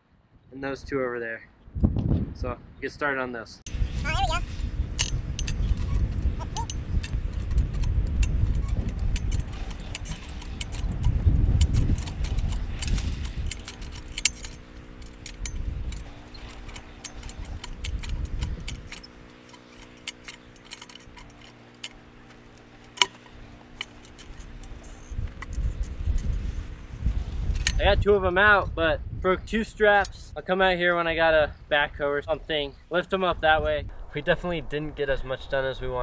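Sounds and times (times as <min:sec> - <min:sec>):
heavy low rumble: 0:03.7 - 0:29.4, 0:33.3 - 0:36.0
metallic ratcheting jack clicks: 0:04.8 - 0:26.5, 0:27.5 - 0:27.9.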